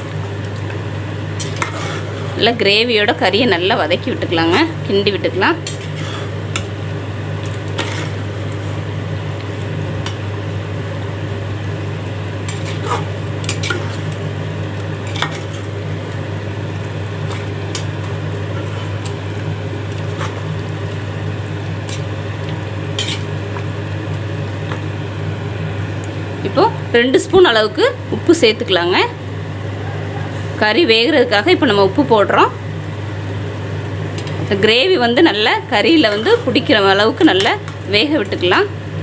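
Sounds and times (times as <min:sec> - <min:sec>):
gravy sizzling: 0:00.0 - 0:39.0
steady low hum: 0:00.0 - 0:39.0
ladle scraping and clinking on pot: 0:01.4 - 0:02.4, 0:05.6 - 0:06.3, 0:07.7 - 0:08.2, 0:12.5 - 0:14.0, 0:23.0 - 0:23.3.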